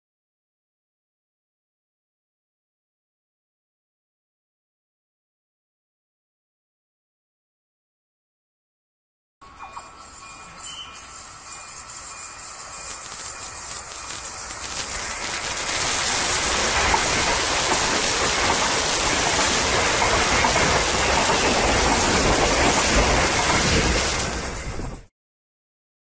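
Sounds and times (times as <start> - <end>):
steady rushing noise: 9.4 - 25.1.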